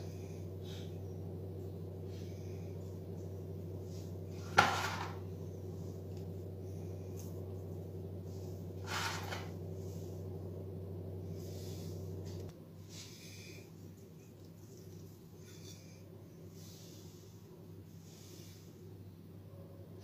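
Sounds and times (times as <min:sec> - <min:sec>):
steady low hum: 0:00.0 - 0:20.0
brief scrape: 0:08.8 - 0:09.5.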